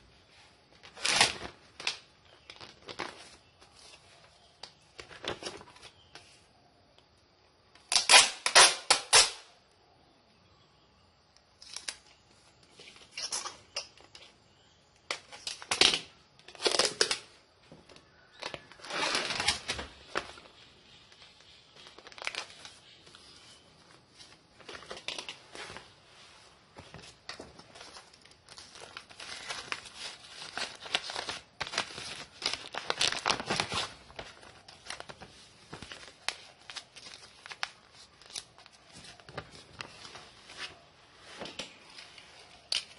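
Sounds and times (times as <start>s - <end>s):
packaging crinkling and rustling: 0.7s - 6.2s, 15.1s - 42.9s.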